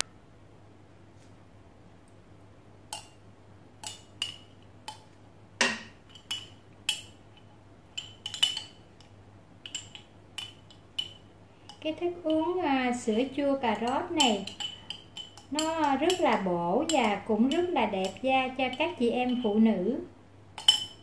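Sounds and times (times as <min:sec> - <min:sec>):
plastic spoon clinking on glass jar: 0:13.7 - 0:19.4, 0:20.6 - 0:21.0.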